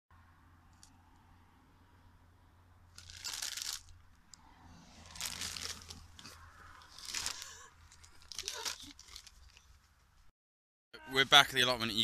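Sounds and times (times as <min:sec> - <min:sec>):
crisp packet crinkling: 0:03.0 - 0:04.0, 0:05.1 - 0:09.7
crisps crunching: 0:03.0 - 0:04.0, 0:05.1 - 0:09.7.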